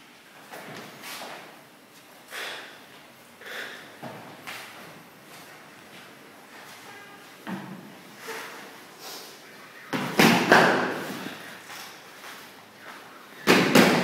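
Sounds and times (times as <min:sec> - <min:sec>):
loud thuds with room echo: 0:09.8 - 0:11.4, 0:13.4 - 0:14.0.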